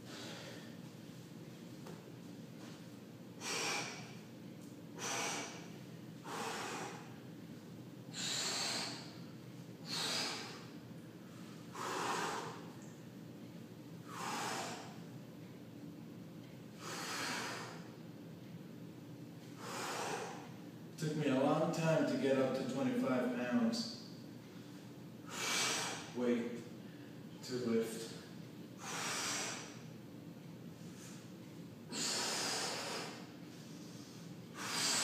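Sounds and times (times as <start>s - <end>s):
man breathing hard: 0.0s - 0.9s, 3.4s - 4.3s, 5.0s - 7.3s, 8.1s - 12.9s, 14.0s - 15.1s, 16.8s - 18.0s, 19.6s - 20.6s, 24.6s - 26.2s, 28.0s - 29.9s, 31.9s - 35.0s
steady low hum: 0.0s - 35.0s.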